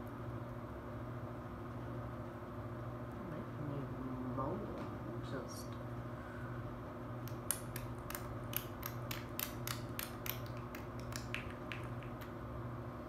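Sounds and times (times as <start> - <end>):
faint steady hum: 0.0 - 13.0
rapid light clicks: 7.2 - 12.4.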